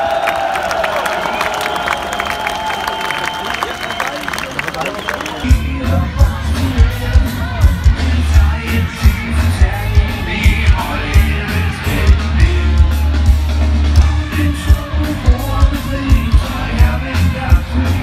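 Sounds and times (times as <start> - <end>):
heavy metal band playing live: 5.5 - 18.0
person singing: 5.5 - 18.0.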